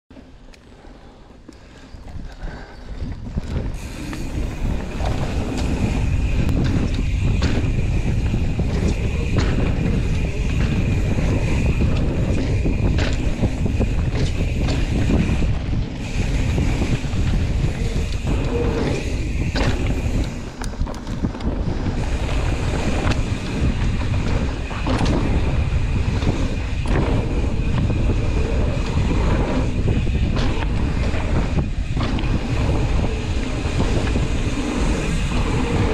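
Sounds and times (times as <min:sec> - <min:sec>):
bike knocking and rattling: 0:00.1 - 0:35.9
wind on microphone: 0:02.0 - 0:35.9
tyre rumble: 0:03.0 - 0:35.9
steady high whir: 0:03.6 - 0:35.9.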